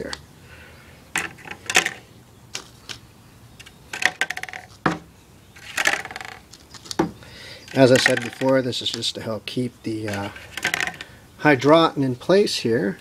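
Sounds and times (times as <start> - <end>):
plastic pots clicking and knocking: 0.0 - 0.2, 1.1 - 3.0, 3.6 - 11.1.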